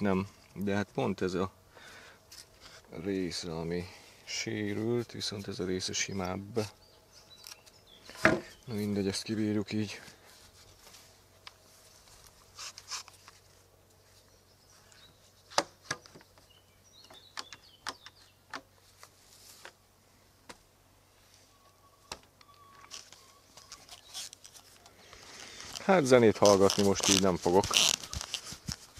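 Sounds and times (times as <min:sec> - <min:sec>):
wood and tools knocking on workbench: 0:08.2 - 0:08.5
faint bird chirps: 0:21.1 - 0:25.8.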